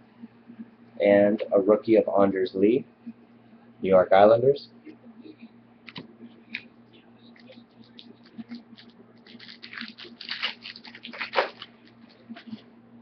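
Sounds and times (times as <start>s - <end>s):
trading cards being shuffled: 7.3s - 12.6s.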